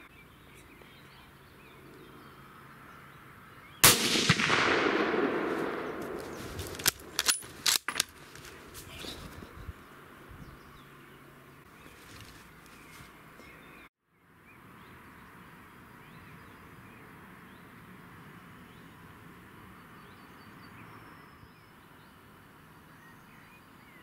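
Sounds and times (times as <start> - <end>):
rifle shot echoing: 3.8 - 7.3.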